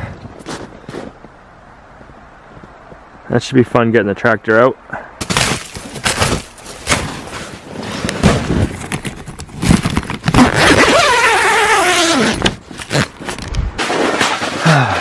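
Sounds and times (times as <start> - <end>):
footsteps crunching in snow: 0.4 - 1.3
heavy zipper pulled open: 7.7 - 14.6.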